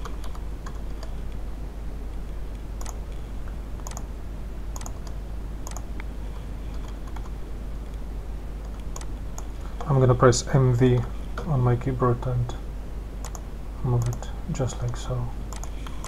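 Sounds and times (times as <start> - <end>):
steady low hum: 0.0 - 16.0
mouse and keyboard clicking: 2.8 - 3.0, 3.8 - 4.1, 4.8 - 5.9, 6.7 - 7.3, 8.6 - 9.9, 13.2 - 13.4, 14.0 - 16.0.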